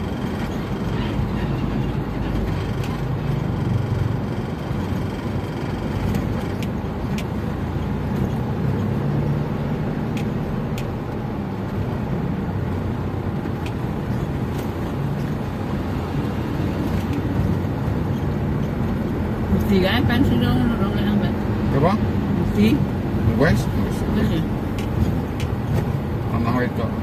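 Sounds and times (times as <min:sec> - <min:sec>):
car engine and road noise: 0:00.0 - 0:27.0.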